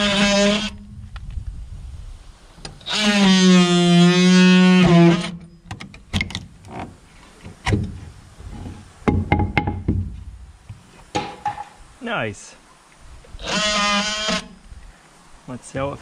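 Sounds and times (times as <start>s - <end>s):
oscillating multi-tool cutting wood: 0.0s - 0.8s, 2.7s - 5.4s, 13.4s - 14.6s
wooden knocks and taps: 9.0s - 11.8s.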